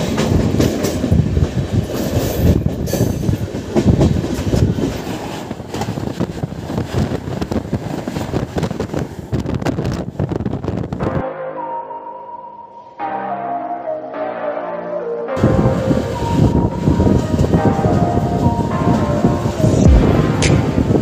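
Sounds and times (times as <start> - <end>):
train wheels clattering: 0.0 - 10.2
passing train: 0.0 - 21.0.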